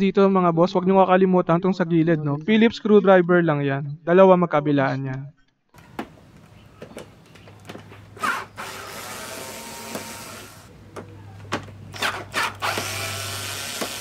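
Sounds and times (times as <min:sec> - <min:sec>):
handling knocks and clicks: 0:05.8 - 0:08.2
cordless screwdriver whirring: 0:08.2 - 0:10.7, 0:12.0 - 0:14.0.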